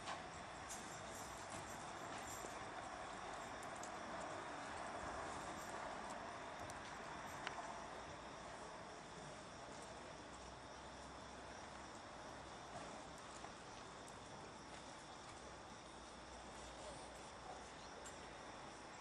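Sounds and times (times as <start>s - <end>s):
crickets chirping: 0.0s - 19.0s
small ticks: 0.1s - 8.3s, 9.5s - 16.4s.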